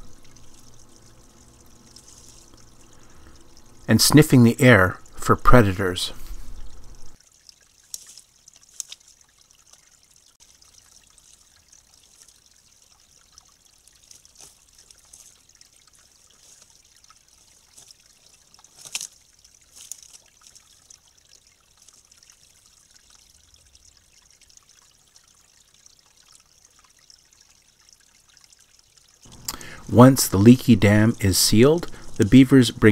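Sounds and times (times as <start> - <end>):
faint trickle of water: 0.0 - 32.9
sticks clicking and rustling: 7.9 - 9.1, 18.6 - 20.5.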